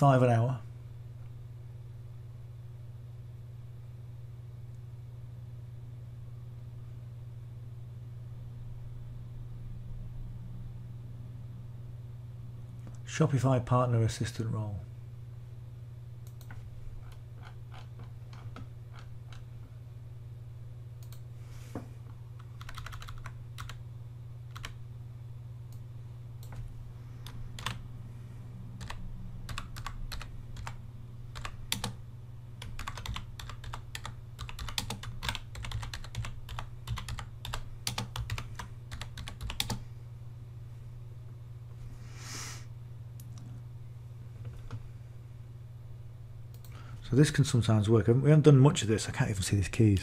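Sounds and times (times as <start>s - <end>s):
steady low hum: 0.0s - 50.0s
keyboard typing: 16.3s - 19.5s, 22.4s - 23.8s, 24.5s - 24.8s, 26.4s - 27.8s, 28.8s - 32.0s, 32.6s - 39.8s
short hiss: 42.0s - 42.7s.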